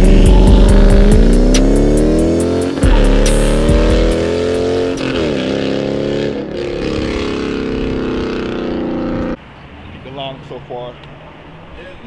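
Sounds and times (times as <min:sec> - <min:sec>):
car engine accelerating: 0:00.0 - 0:09.4.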